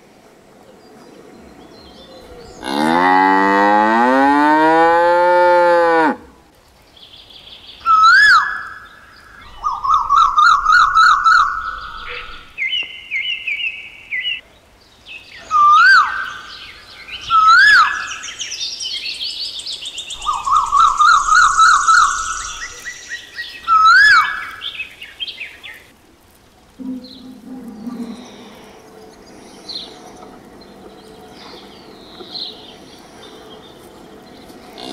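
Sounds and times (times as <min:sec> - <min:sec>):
cow mooing: 0:02.6 - 0:06.3, 0:34.6 - 0:34.9
birds whistling: 0:07.8 - 0:14.4, 0:15.2 - 0:25.9, 0:26.8 - 0:34.9
bird trilling: 0:20.2 - 0:24.8.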